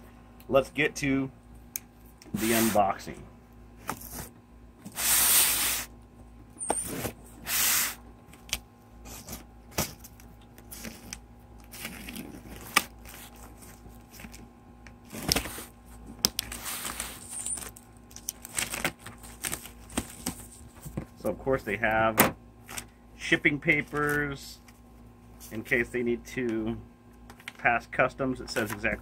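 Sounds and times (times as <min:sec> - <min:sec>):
cardboard flaps and papers rustling: 0:09.1 - 0:14.4, 0:15.0 - 0:21.3
packing tape ripping: 0:16.3 - 0:20.4.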